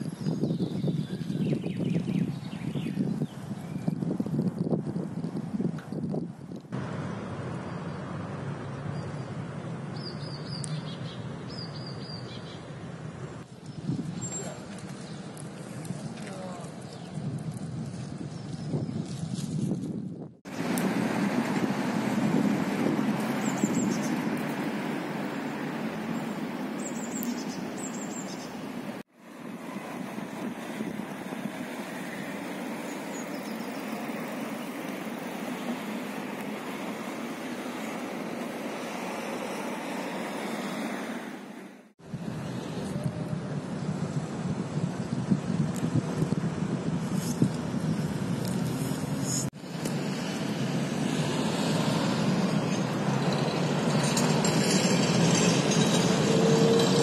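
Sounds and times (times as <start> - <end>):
city traffic hum: 0.0 - 57.0
songbird chirping: 7.0 - 15.4, 25.2 - 29.0
bird chirps: 10.0 - 12.7, 23.4 - 24.3, 26.2 - 28.7.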